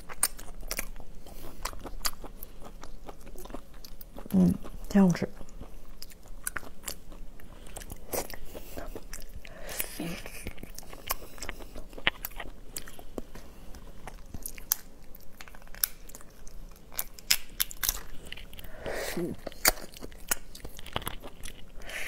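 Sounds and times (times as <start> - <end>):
crunching and chewing: 0.0 - 22.0
lobster shells cracking by hand: 16.8 - 18.6.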